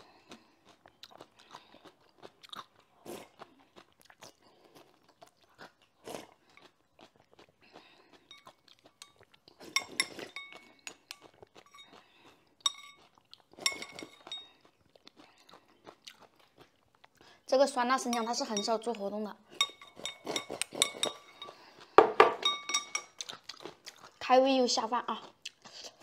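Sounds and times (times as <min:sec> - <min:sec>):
crunchy chewing: 0:00.0 - 0:17.5, 0:23.0 - 0:24.2
chopsticks clinking on porcelain bowl: 0:08.3 - 0:12.0, 0:12.6 - 0:14.5, 0:18.0 - 0:23.4.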